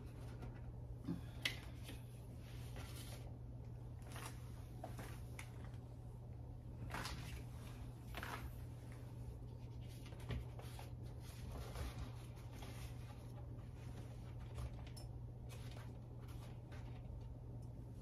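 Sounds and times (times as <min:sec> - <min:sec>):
steady low hum: 0:00.0 - 0:18.0
faint rustling and scraping: 0:01.6 - 0:03.4, 0:06.8 - 0:17.4.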